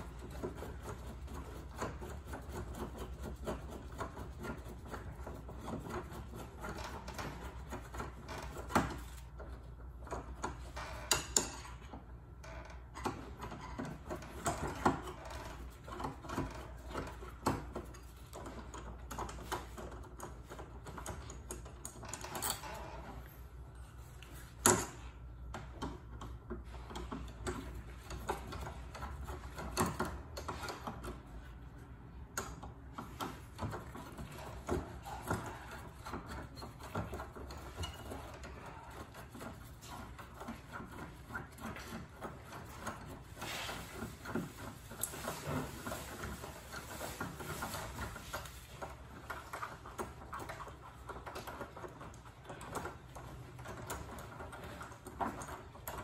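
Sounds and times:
screwdriver clicking and scraping metal: 0:24.2 - 0:56.0.

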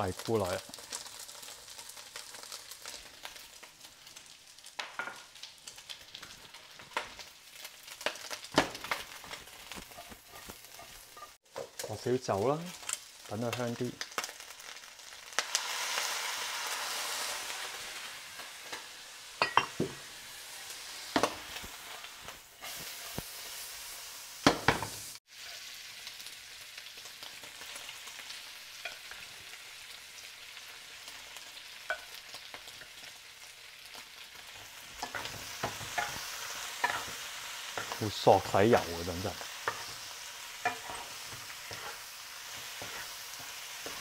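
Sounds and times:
food sizzling in a frying pan: 0:00.0 - 0:44.0
spatula stirring and scraping: 0:07.9 - 0:11.9, 0:39.4 - 0:44.0.

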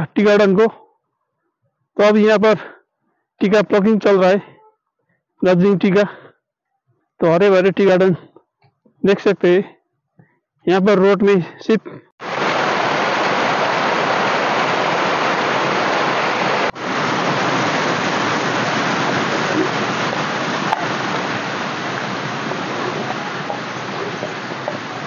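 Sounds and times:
stream splashing over rocks: 0:12.2 - 0:25.0.

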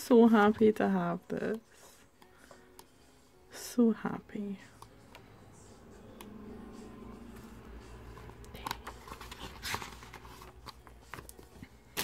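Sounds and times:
pages being turned: 0:08.1 - 0:12.0.

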